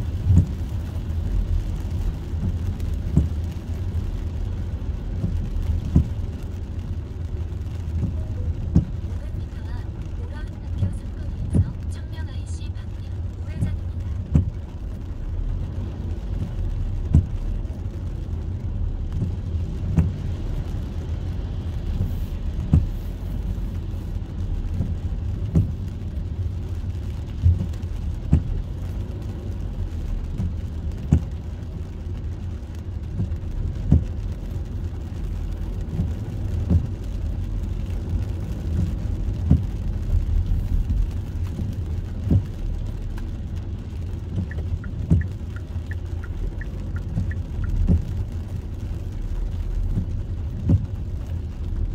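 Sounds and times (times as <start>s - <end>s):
tyre rumble on wet road: 0.0s - 51.9s
windshield wiper thump: 0.2s - 0.7s, 2.4s - 3.5s, 5.2s - 6.2s, 7.9s - 9.1s, 14.2s - 14.6s, 16.3s - 17.6s, 19.1s - 20.4s, 21.8s - 23.0s, 24.7s - 25.9s, 27.4s - 28.5s, 30.4s - 31.4s, 33.1s - 34.1s, 35.8s - 37.0s, 38.7s - 39.8s, 40.8s - 43.5s, 44.2s - 48.3s, 49.8s - 51.0s.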